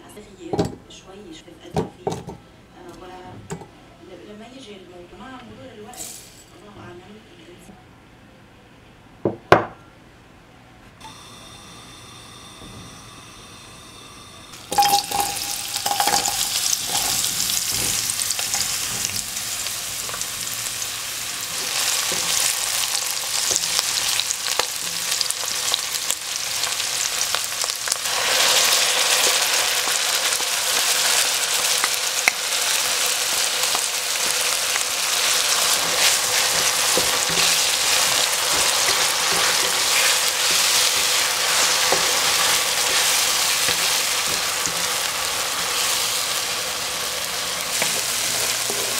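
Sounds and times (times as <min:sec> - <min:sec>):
onion sizzling in oil: 0:13.2 - 0:48.9
spatula scraping wok: 0:14.8 - 0:25.2, 0:33.6 - 0:48.9.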